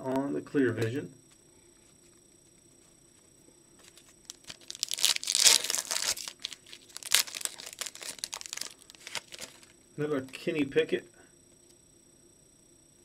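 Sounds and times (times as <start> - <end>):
foil wrapper crinkling: 3.8 - 9.7.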